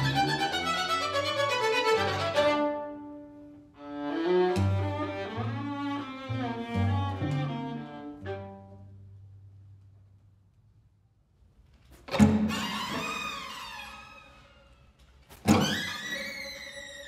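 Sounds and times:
string quartet playing: 0.0s - 9.2s, 12.1s - 14.7s.

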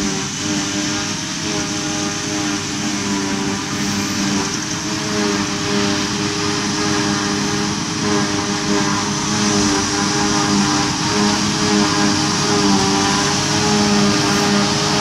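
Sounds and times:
forage harvester machine drone: 0.0s - 15.0s.

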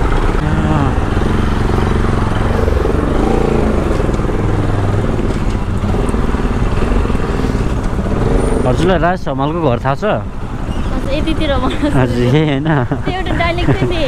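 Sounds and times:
motorcycle engine accelerating: 0.0s - 9.7s.

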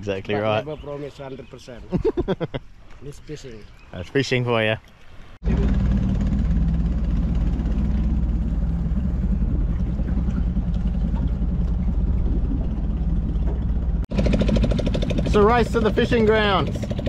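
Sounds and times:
boat engine low drone: 5.4s - 17.0s.

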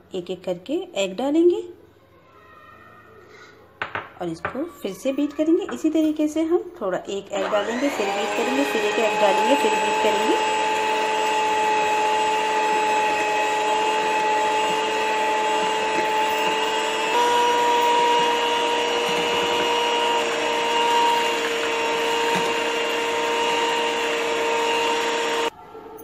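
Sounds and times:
electric hand mixer whine: 7.4s - 25.5s.

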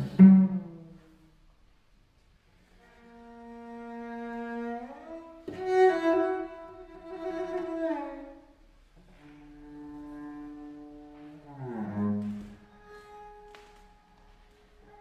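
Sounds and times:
bowed cello notes: 0.0s - 1.3s, 2.8s - 15.0s.

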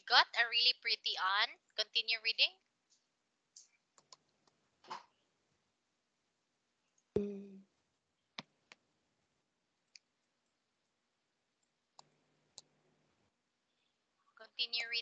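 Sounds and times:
mouse clicks: 3.6s - 4.6s.

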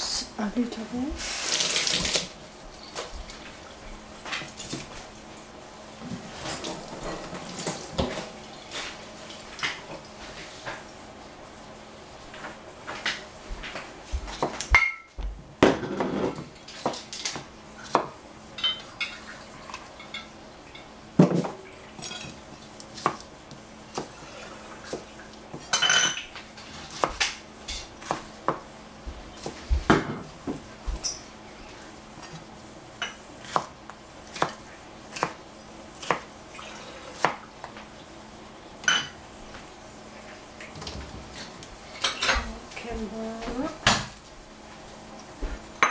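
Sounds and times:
knife chopping on plastic board: 16.8s - 18.2s, 23.0s - 24.1s, 28.0s - 28.7s, 33.4s - 35.4s, 36.0s - 36.3s, 37.2s - 37.4s.

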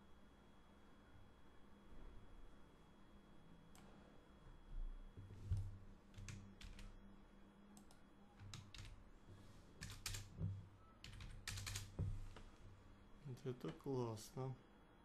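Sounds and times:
computer keyboard keystrokes: 6.2s - 6.9s, 7.8s - 9.0s, 9.8s - 10.3s, 11.0s - 12.0s.

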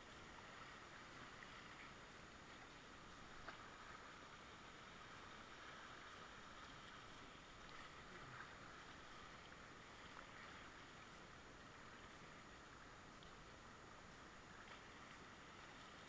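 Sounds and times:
light ticks: 5.0s - 15.4s.

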